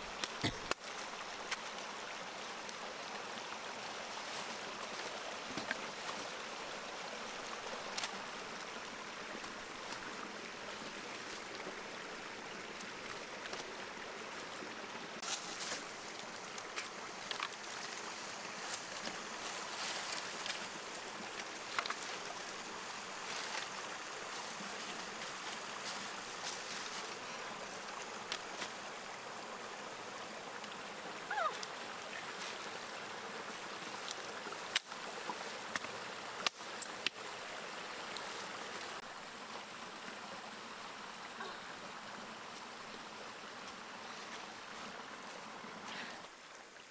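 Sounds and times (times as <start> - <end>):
stream running over stones: 0.0 - 46.9
dry sticks snapping and crackling: 7.9 - 8.2, 16.5 - 17.7, 21.3 - 22.0, 35.7 - 37.2.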